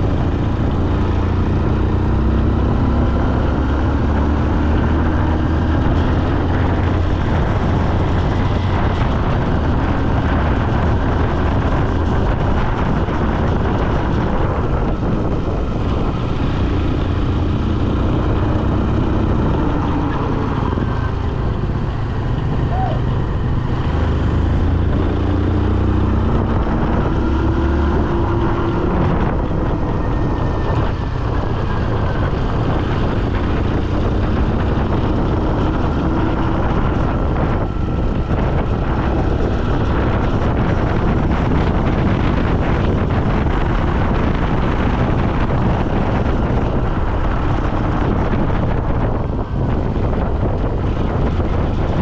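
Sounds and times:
faint engine hum: 0.0s - 52.0s
wind rush on microphone: 0.0s - 52.0s.

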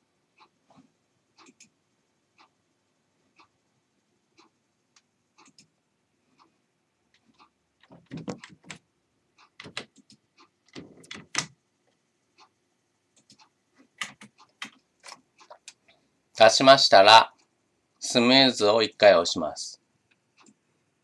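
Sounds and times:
mouse and keyboard clicks: 4.4s - 5.7s, 7.2s - 8.8s, 9.4s - 11.6s
knocks and clatter: 7.8s - 8.8s.

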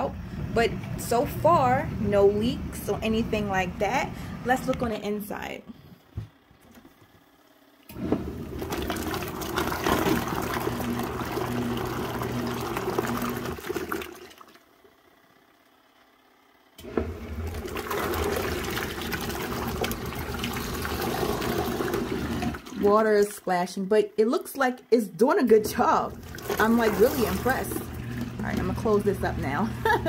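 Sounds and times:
washing machine motor hum: 0.0s - 30.0s
water churning and splashing: 8.4s - 14.6s, 17.3s - 23.0s, 26.1s - 29.0s.

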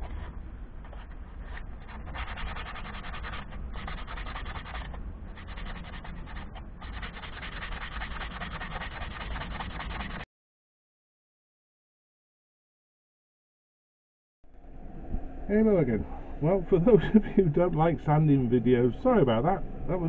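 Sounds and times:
sandpaper rubbing wood: 0.8s - 10.2s.

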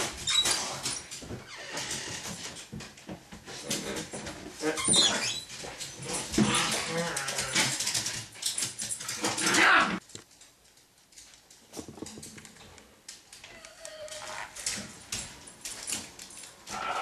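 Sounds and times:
dog whimpering and yelping: 13.5s - 14.6s.

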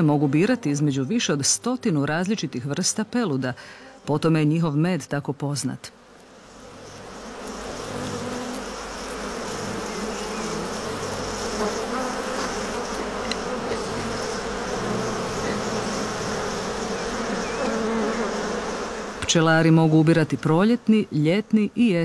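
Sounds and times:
honeybees buzzing: 5.8s - 22.0s.

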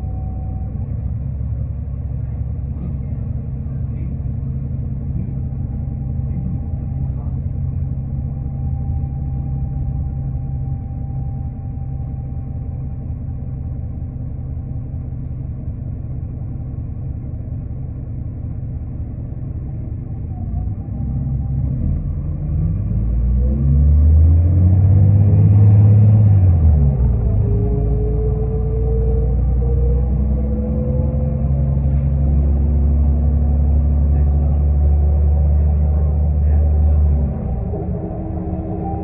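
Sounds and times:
bus engine and road rumble: 0.0s - 39.0s.

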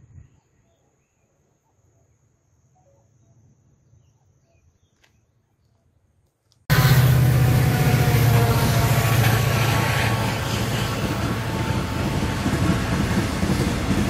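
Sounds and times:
faint chirps: 0.2s - 5.9s.

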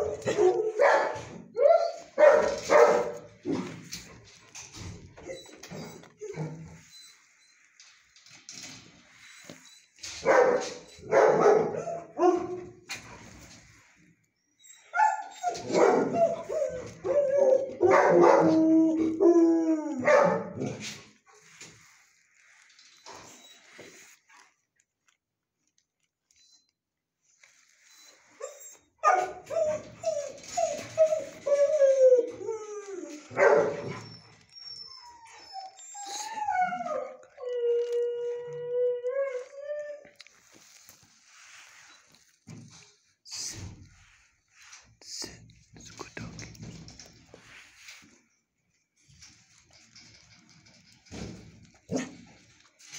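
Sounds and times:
dog barking: 0.0s - 1.3s, 2.2s - 3.3s, 10.2s - 12.6s, 15.6s - 16.4s, 17.8s - 18.5s, 20.0s - 20.8s, 33.4s - 33.9s, 51.9s - 52.2s
dog whining: 14.7s - 20.1s, 27.9s - 40.2s.

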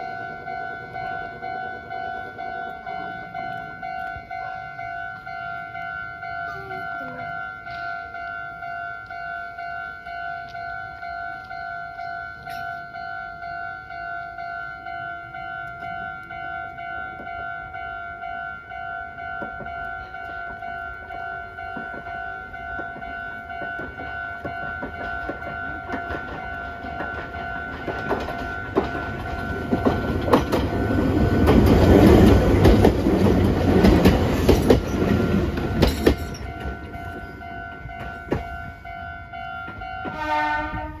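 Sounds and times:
level-crossing alarm ringing: 0.0s - 40.8s
train wheels clacking over rail joints: 19.3s - 40.5s.

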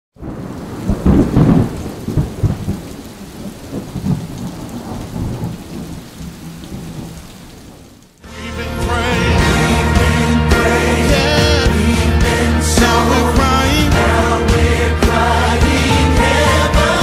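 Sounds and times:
rolling thunder: 0.2s - 8.0s
steady rain: 0.2s - 14.0s.

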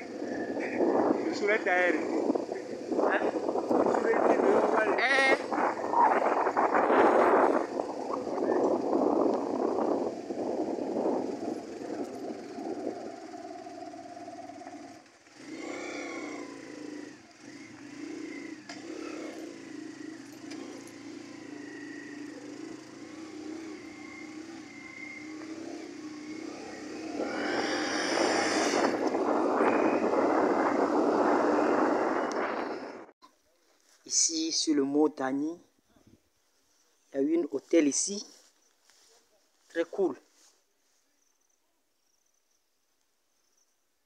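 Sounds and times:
motorcycle engine drone: 0.0s - 33.2s
road and wind noise: 0.0s - 33.4s.

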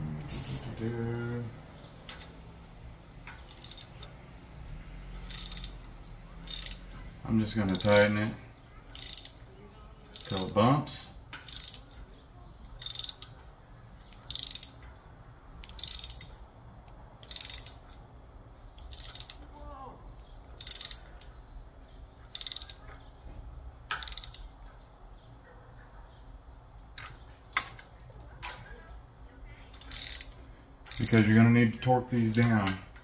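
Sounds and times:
ratchet wrench clicking: 0.2s - 0.7s, 3.3s - 4.1s, 5.2s - 7.0s, 7.7s - 8.2s, 8.9s - 9.4s, 10.1s - 10.6s, 11.3s - 12.0s, 12.6s - 13.4s, 14.1s - 14.9s, 15.6s - 16.4s, 17.2s - 18.0s, 18.8s - 19.5s, 20.6s - 21.3s, 22.3s - 22.9s, 23.9s - 24.5s, 29.8s - 31.4s, 32.3s - 32.7s.

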